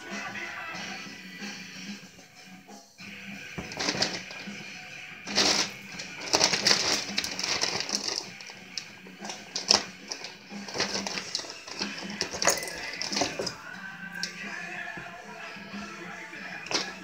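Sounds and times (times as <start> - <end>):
kittens scrambling in wire crate: 3.6 - 4.5, 5.3 - 13.7
kitten scratching in cat litter: 5.3 - 12.4.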